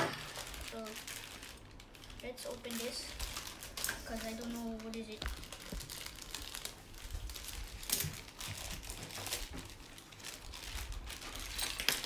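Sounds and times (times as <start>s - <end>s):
packaging crinkling: 0.0s - 12.0s.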